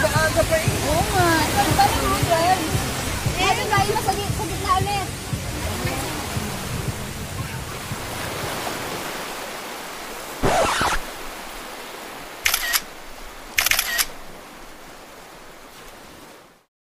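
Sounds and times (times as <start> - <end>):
surf rushing on a beach: 0.0 - 16.7
short sharp sounds: 10.4 - 11.2.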